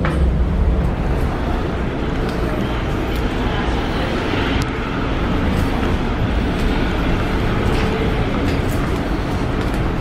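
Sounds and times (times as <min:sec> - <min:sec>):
ferry engine rumble: 0:00.0 - 0:10.0.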